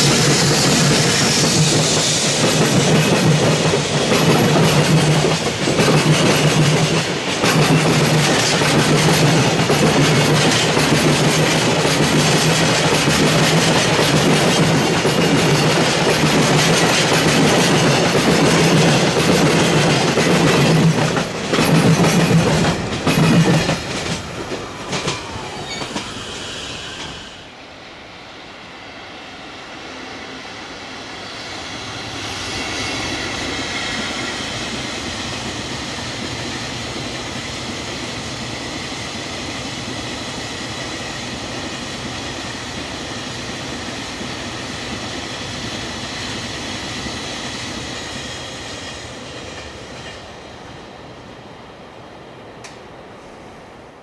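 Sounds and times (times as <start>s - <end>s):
freight train rumble: 0.0s - 54.0s
train rolling noise: 0.0s - 54.0s.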